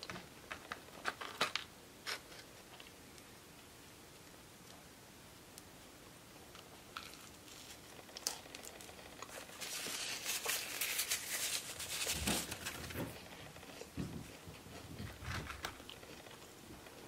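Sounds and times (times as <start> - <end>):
chewing fried chicken: 6.6 - 17.0
paper napkin crumpling: 8.6 - 13.3.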